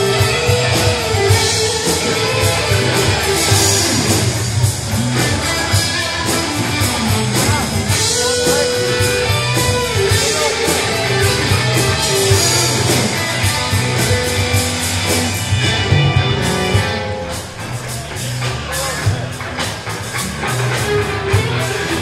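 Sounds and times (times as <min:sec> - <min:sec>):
bass: 0:00.0 - 0:22.0
drum kit beat: 0:00.0 - 0:22.0
electric guitars: 0:00.0 - 0:22.0
keyboard: 0:00.0 - 0:22.0.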